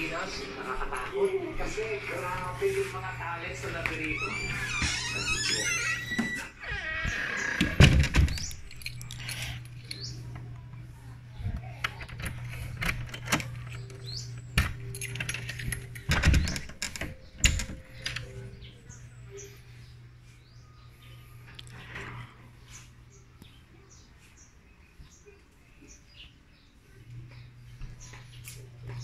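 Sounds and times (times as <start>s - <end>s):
wooden door opening: 2.1s - 19.8s
steady low hum: 7.6s - 29.0s.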